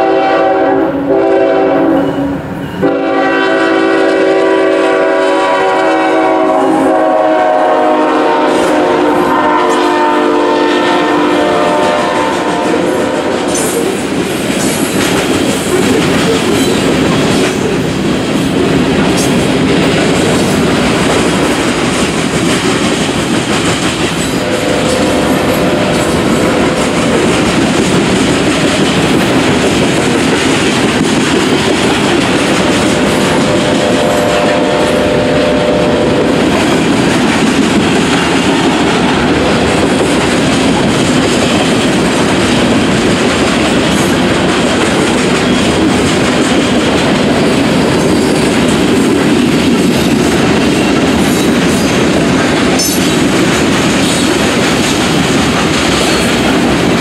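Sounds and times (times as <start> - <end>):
freight train rumble: 0.0 - 57.0
wheels clacking over rail joints: 13.5 - 33.6.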